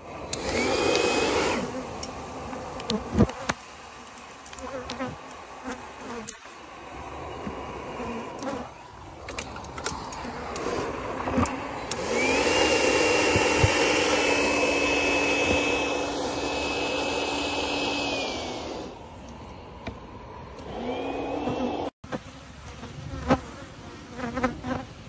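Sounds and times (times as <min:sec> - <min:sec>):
motorised fogger whine: 0:00.0 - 0:03.0, 0:10.0 - 0:19.6, 0:20.4 - 0:22.0.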